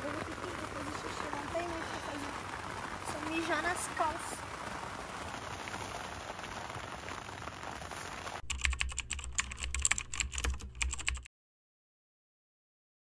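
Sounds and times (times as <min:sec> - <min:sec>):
rain on tent fabric: 0:00.0 - 0:11.2
rapid keyboard clicks: 0:08.4 - 0:11.3.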